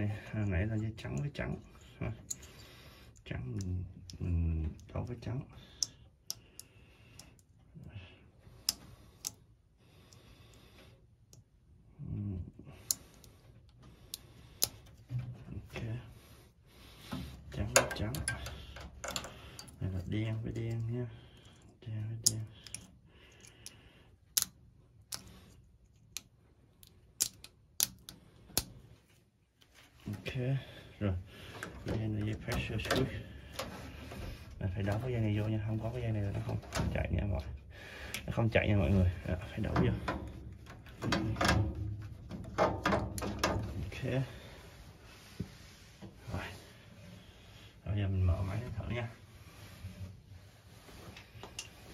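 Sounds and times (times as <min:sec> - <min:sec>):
wires rustling: 0:12.7 - 0:51.9
sharp clicks of connectors: 0:22.2 - 0:28.8.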